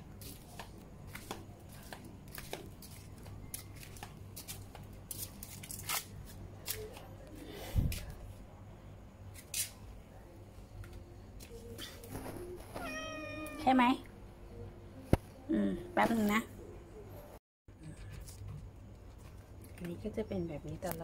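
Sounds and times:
footsteps on tiled floor: 0:00.0 - 0:08.3, 0:10.7 - 0:13.6.

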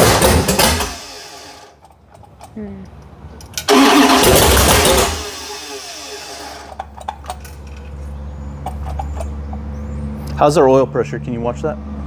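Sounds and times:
engine revving then idling: 0:03.7 - 0:06.7.

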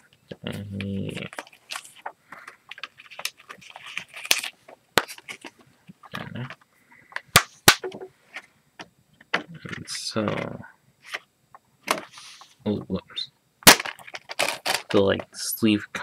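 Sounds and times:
paper rustling and crinkling: 0:01.0 - 0:05.6.

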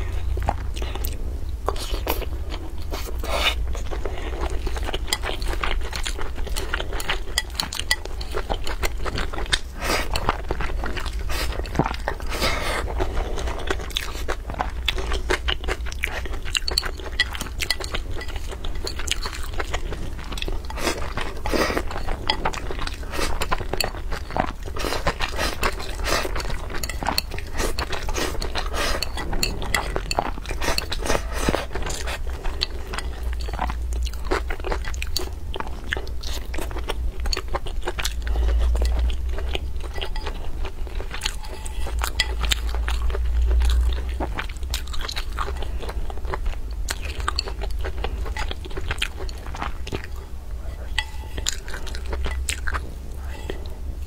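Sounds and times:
chewing with wet mouth smacks: 0:00.0 - 0:53.7
low hum: 0:26.4 - 0:34.2.

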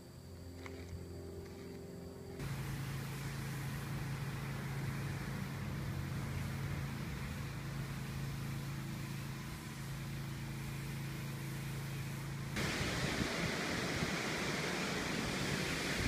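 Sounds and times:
low hum with held tones: 0:00.0 - 0:16.0
rushing noise: 0:02.4 - 0:16.0
wind buffeting microphone: 0:12.6 - 0:16.0.

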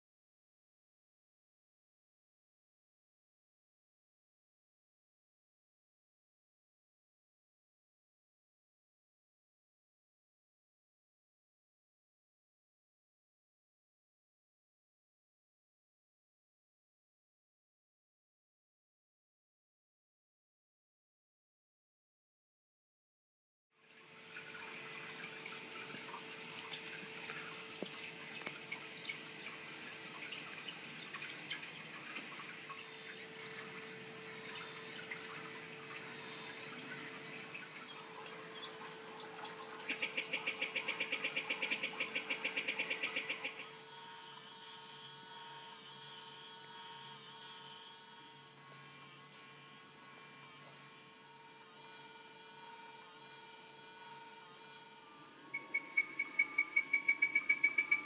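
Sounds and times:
small electric motor whirring: 0:23.9 - 0:58.0
rapid buzzing rattle: 0:24.3 - 0:45.2, 0:53.8 - 0:58.0.

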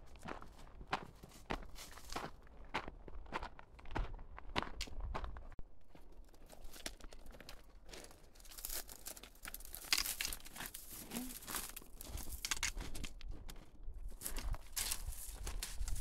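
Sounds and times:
footsteps crunching on dirt: 0:00.0 - 0:16.0.

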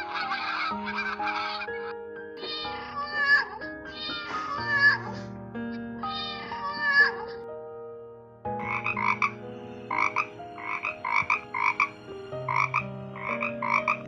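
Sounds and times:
frog croaking: 0:00.0 - 0:03.4, 0:08.6 - 0:14.0.

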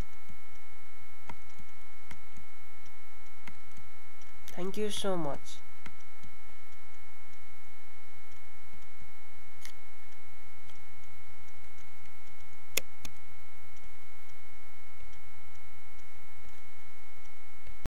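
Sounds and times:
electrical hum and hiss: 0:00.0 - 0:17.9
sharp clicks: 0:09.6 - 0:14.4.

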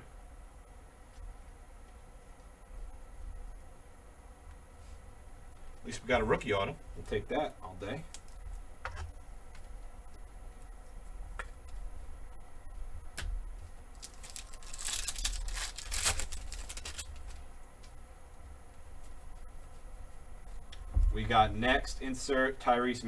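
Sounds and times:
plastic foil wrapper tearing: 0:13.9 - 0:17.4.

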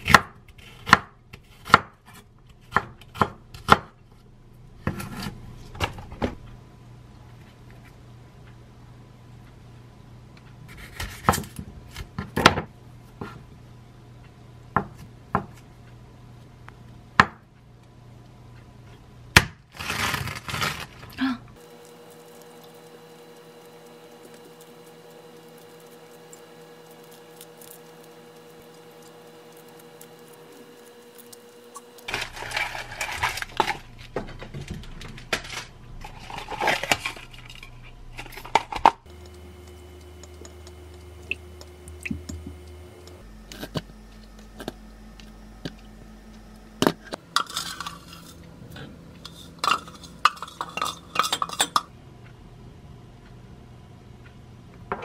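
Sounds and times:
dishes and utensils clattering: 0:49.2 - 0:51.9.

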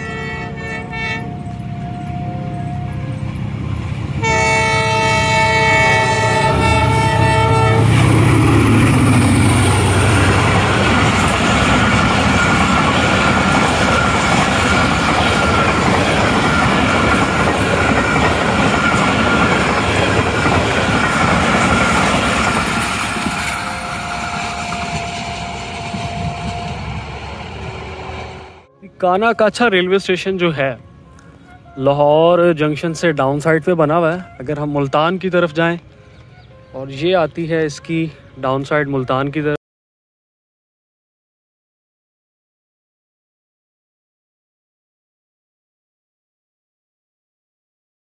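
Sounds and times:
locomotive horn chord: 0:00.0 - 0:03.6, 0:04.2 - 0:08.2, 0:22.7 - 0:29.0
train passing with rail clatter: 0:00.0 - 0:28.7.

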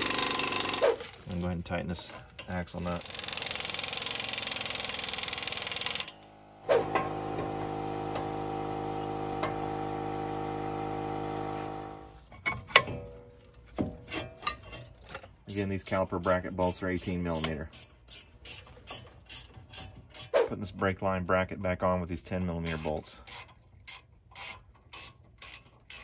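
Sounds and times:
air impact wrench running: 0:00.0 - 0:01.2, 0:02.8 - 0:12.2
steady machine hum: 0:05.4 - 0:12.2
metal clinks and knocks: 0:12.2 - 0:16.8.

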